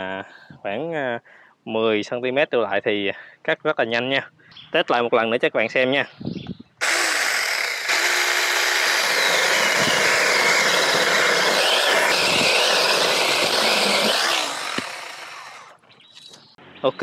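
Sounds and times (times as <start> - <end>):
battery chainsaw whining: 6.8 - 15.8
chain cutting wood: 6.8 - 16.3.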